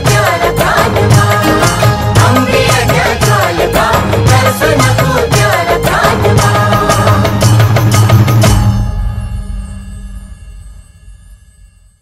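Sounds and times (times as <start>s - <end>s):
steady drum beat: 0.0s - 8.8s.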